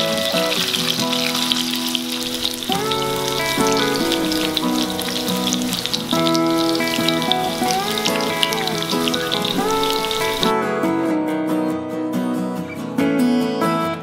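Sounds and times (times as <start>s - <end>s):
fish sizzling in oil: 0.0s - 10.5s
background music: 0.0s - 14.0s.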